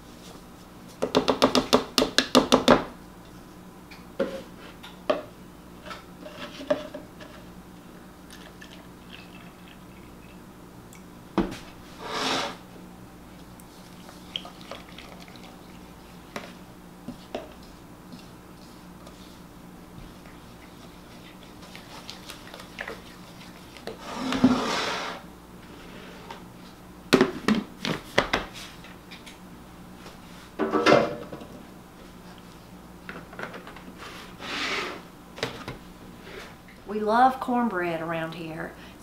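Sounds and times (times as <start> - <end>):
liquid pouring into bowl: 8.3 - 10.4, 13.9 - 15.9.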